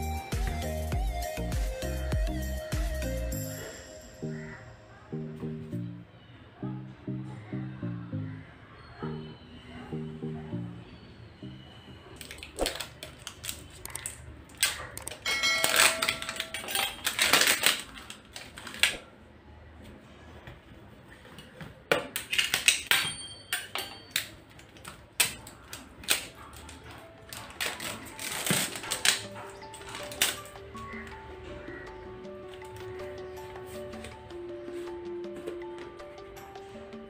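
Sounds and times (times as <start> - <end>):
plastic containers being opened: 12.2 - 19.1, 21.1 - 34.8.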